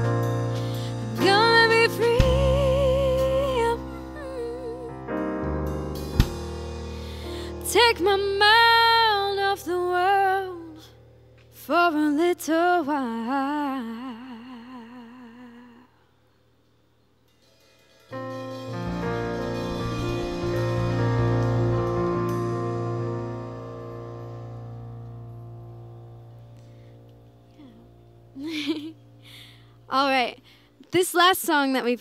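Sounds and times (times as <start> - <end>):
keyboard chords: 0.0 - 9.1, 18.1 - 29.4
woman singing with vibrato: 1.0 - 5.1, 7.5 - 10.9, 11.6 - 16.0.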